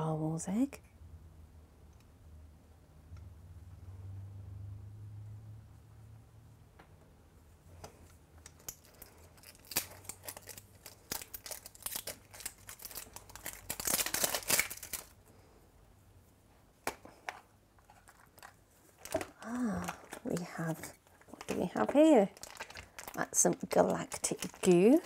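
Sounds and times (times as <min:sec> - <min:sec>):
plastic wrap crinkling: 0:08.4 - 0:15.2, 0:17.8 - 0:25.0.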